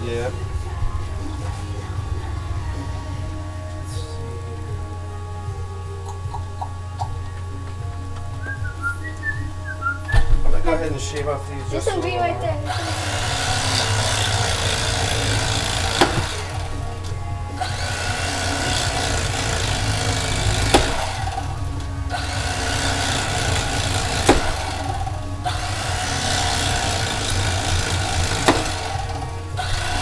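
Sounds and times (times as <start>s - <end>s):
electric knife motor buzzing: 0.0s - 30.0s.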